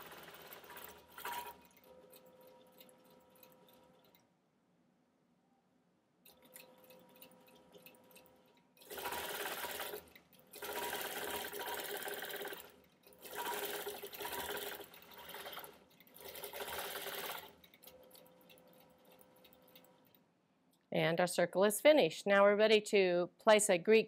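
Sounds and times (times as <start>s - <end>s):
quilting machine stitching fast: 0.0s - 4.2s, 8.8s - 19.8s.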